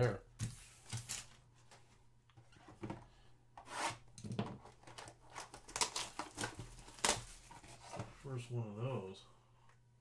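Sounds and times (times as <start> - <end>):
card wrapper rustles and clicks: 4.8 - 7.6.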